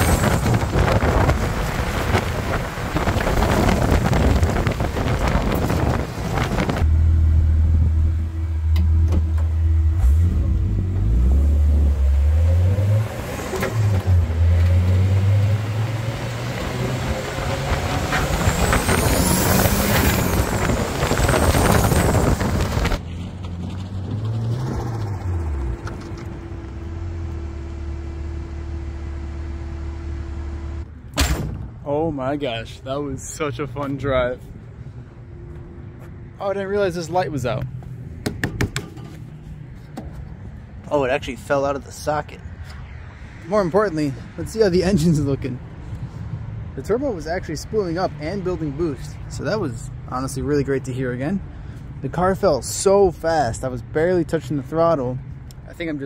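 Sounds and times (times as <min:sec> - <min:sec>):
car engine revving: 0:00.0 - 0:30.9.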